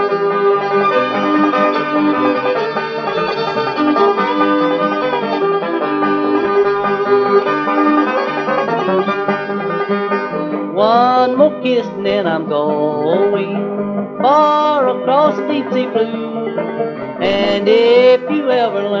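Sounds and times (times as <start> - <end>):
fiddle: 0.0 - 11.3
banjo: 0.0 - 19.0
guitars: 0.0 - 19.0.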